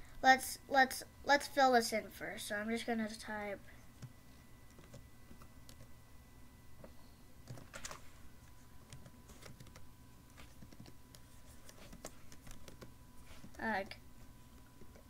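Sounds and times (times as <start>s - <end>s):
faint high tone hum: 0.0s - 15.0s
typing on computer keyboard: 7.4s - 8.0s, 8.9s - 12.9s.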